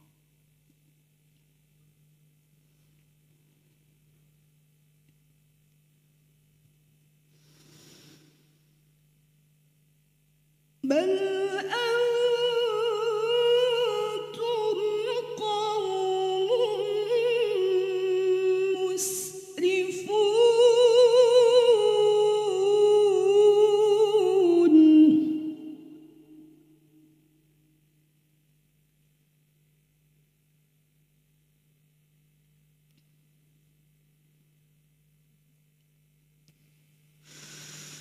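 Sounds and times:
faint low hum: 0:00.0 - 0:38.0
woman reciting melodically: 0:10.8 - 0:26.5.

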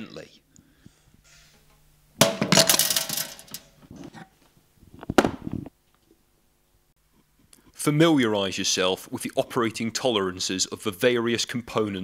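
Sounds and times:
metal clank: 0:01.7 - 0:03.8.

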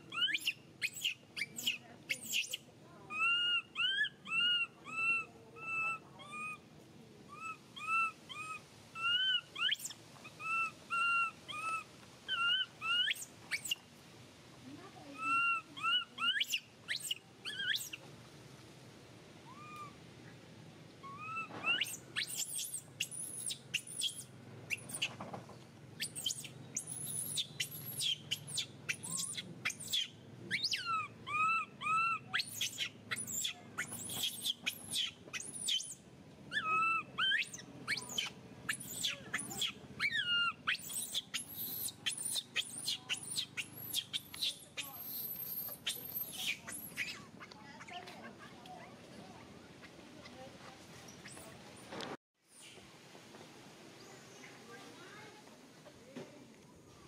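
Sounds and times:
baby monkey crying: 0:03.1 - 0:06.6, 0:07.3 - 0:13.8, 0:15.2 - 0:18.0, 0:19.4 - 0:20.0, 0:21.0 - 0:25.1, 0:26.0 - 0:48.0.

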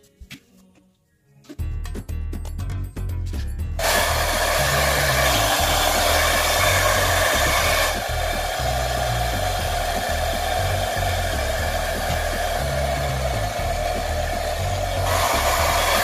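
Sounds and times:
background music with bass line: 0:01.5 - 0:16.0
hair dryer blowing: 0:03.8 - 0:16.0.

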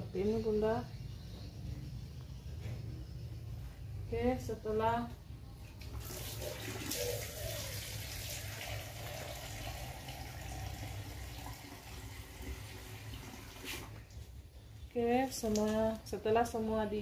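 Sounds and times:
water sloshing in a basin: 0:05.6 - 0:16.1.

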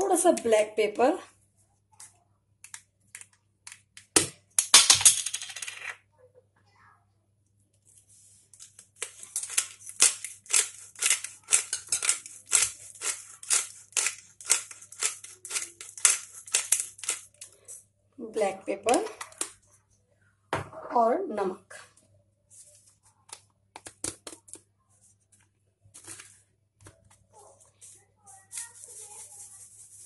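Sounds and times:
pepper grinder strokes: 0:09.4 - 0:17.8.

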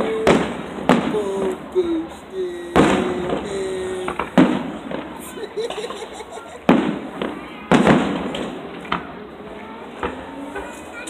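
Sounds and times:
firework shells booming: 0:00.0 - 0:09.2
rolling echo: 0:00.0 - 0:09.2.

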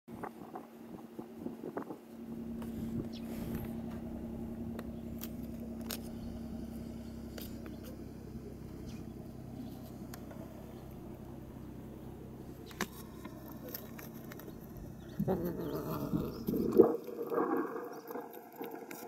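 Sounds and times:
low engine hum: 0:00.1 - 0:19.0
light clicks and scrapes: 0:16.4 - 0:19.0.

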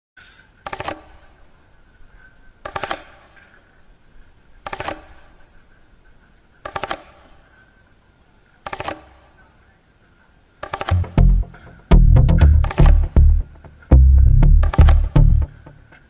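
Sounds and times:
bursts of rapid clicking: 0:10.8 - 0:15.6.

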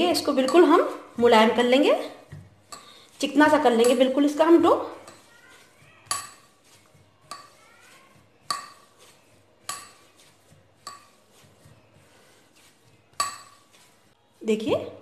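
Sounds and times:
dough kneaded on marble board: 0:00.0 - 0:15.0.

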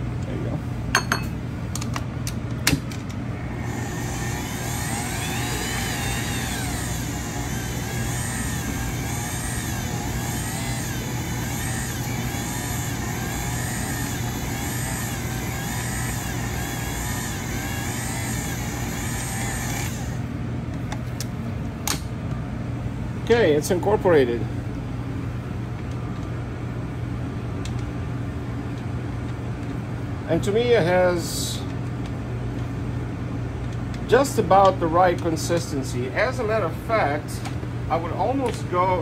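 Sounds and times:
stand mixer motor whine: 0:03.3 - 0:20.3.

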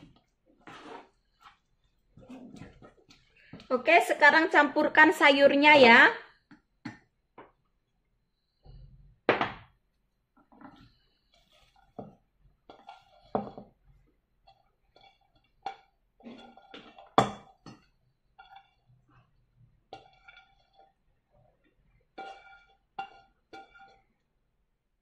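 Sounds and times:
batter scraping and rustling: 0:00.6 - 0:01.6.

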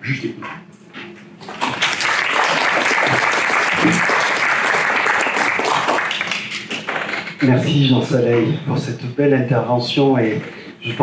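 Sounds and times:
audience applauding: 0:01.4 - 0:07.2.

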